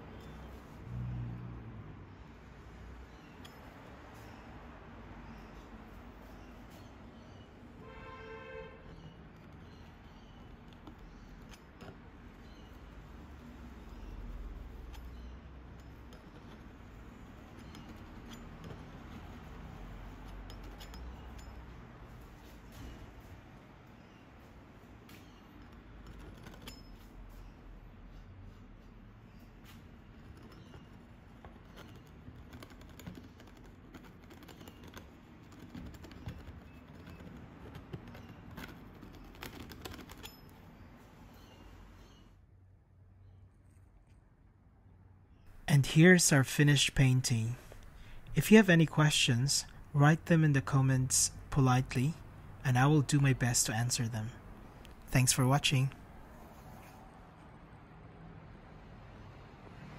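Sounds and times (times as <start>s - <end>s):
palette knife tapping and scraping: 8.9s - 21.7s, 30.2s - 40.5s.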